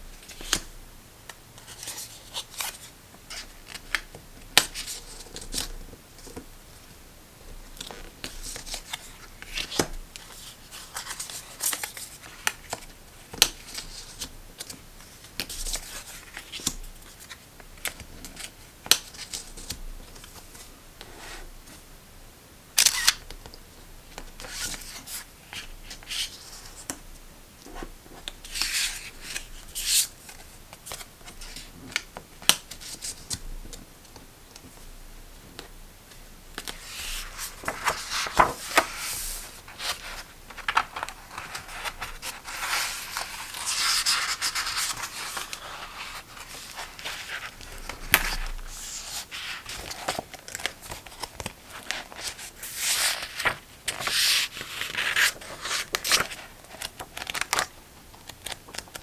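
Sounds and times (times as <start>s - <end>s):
pages flipping: 7.8s - 20.7s, 36.6s - 57.7s, 58.3s - 59.0s
plastic rubbing and rustling: 36.7s - 57.7s.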